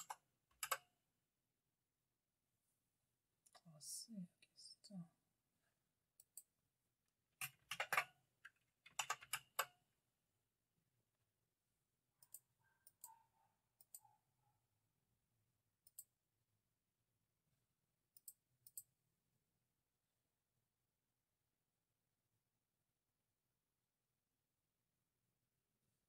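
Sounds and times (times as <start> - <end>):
keyboard keys clicking: 0.0 - 0.9, 7.4 - 9.8.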